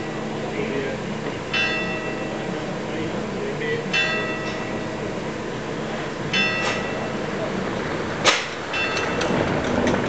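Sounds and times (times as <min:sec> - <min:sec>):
steady background rumble: 0:00.0 - 0:10.0
ringing metallic clank: 0:01.5 - 0:02.4, 0:03.9 - 0:04.9, 0:06.3 - 0:07.2, 0:08.3 - 0:09.4.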